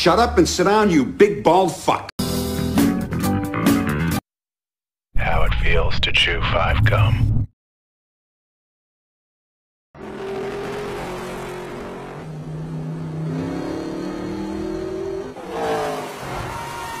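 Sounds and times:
race car engine revving: 10.0s - 17.0s.

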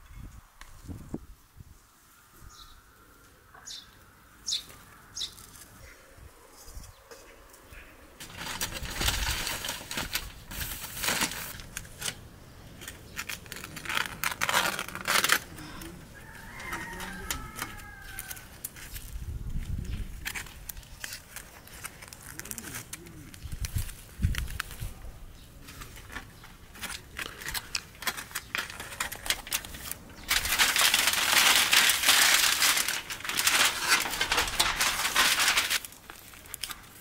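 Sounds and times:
aluminium foil crinkling: 8.2s - 37.0s.

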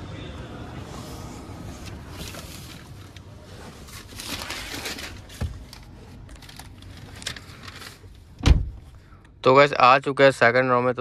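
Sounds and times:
rustling and handling noise: 1.0s - 8.8s
dull thump: 8.4s - 8.8s.

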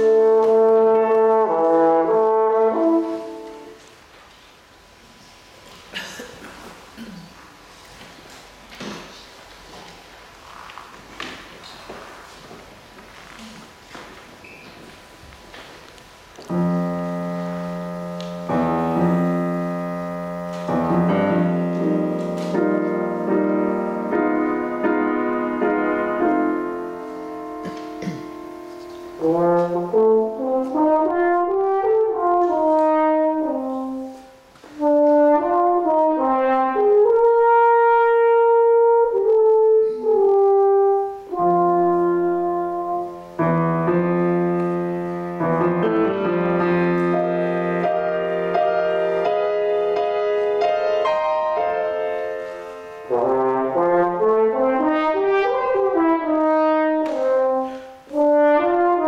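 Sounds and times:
french horn melody: 0.0s - 4.0s, 16.4s - 59.0s
piano accompaniment: 0.0s - 4.2s, 16.2s - 59.0s.

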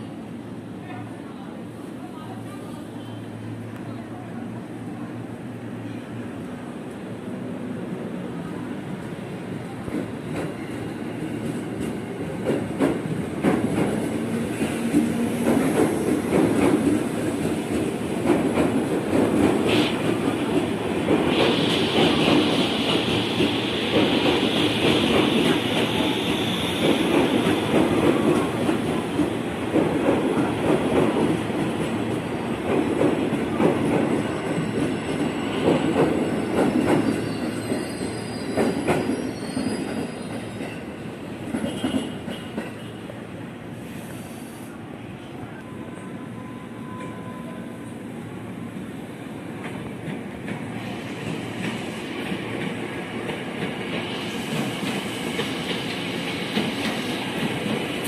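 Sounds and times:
electric train rolling past: 0.0s - 58.0s
high wheel squeal: 36.2s - 40.8s.

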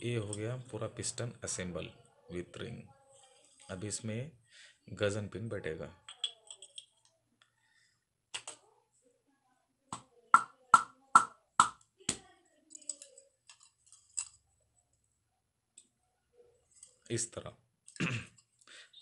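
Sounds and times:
small metal clicks: 6.1s - 7.1s, 12.7s - 14.4s.

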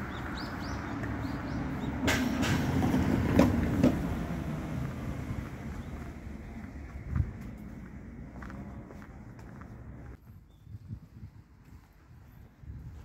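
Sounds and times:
road traffic rumble: 0.0s - 10.2s.

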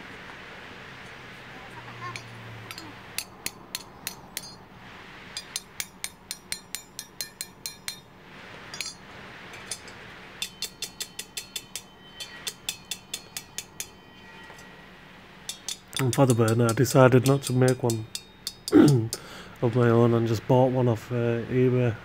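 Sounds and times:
hammer striking metal pipe: 2.1s - 4.6s, 5.4s - 8.1s, 8.7s - 9.0s, 9.6s - 14.7s, 15.4s - 19.3s.

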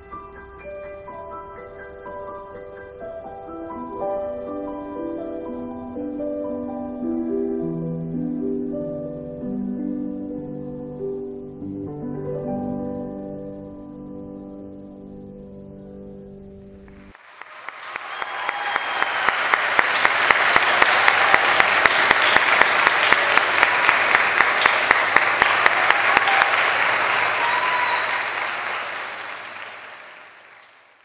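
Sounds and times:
audience applause: 17.0s - 31.0s.

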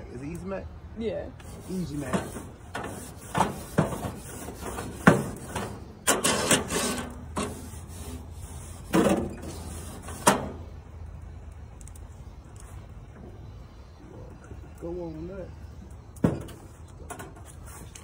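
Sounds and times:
short scraping rub: 1.4s - 10.6s.

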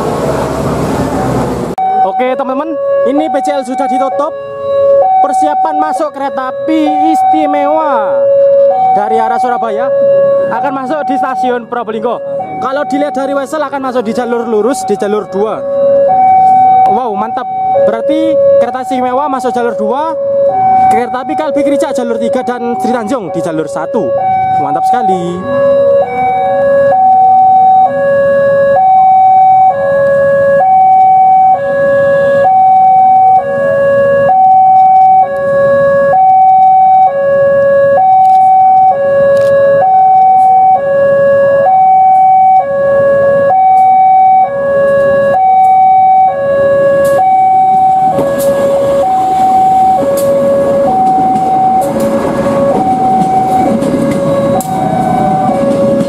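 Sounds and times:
diesel railcar rumbling past: 0.0s - 2.0s, 46.7s - 56.0s
level crossing two-tone alarm: 1.8s - 56.0s.

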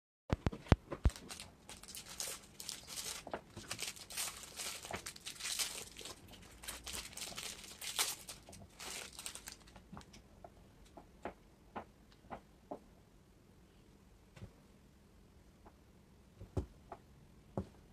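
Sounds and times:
plastic wrappers crinkling: 1.0s - 10.2s.

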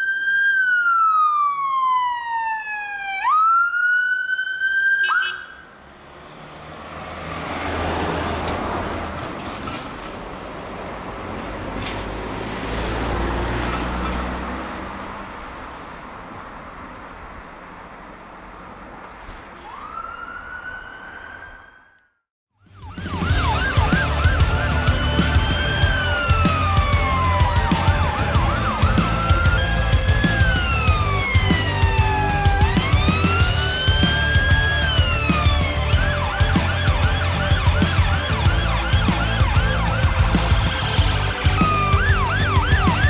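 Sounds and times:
siren wailing: 0.0s - 5.8s, 19.6s - 43.0s
vehicle engine and tyre noise: 4.6s - 21.8s, 22.7s - 43.0s.

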